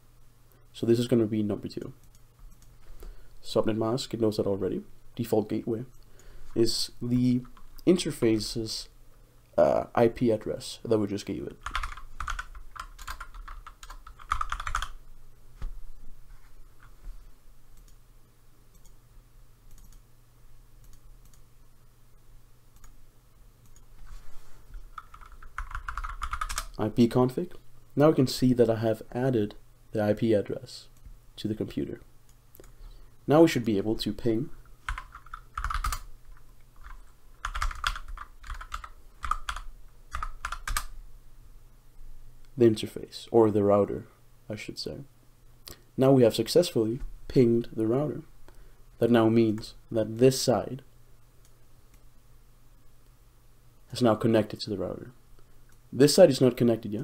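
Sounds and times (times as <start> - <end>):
typing on keyboard: 11.6 - 15.0, 25.0 - 26.8, 34.9 - 36.1, 36.8 - 40.9.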